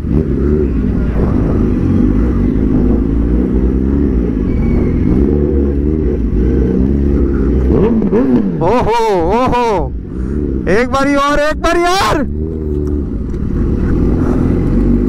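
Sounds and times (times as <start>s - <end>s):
motorbike engines revving: 0.0s - 15.0s.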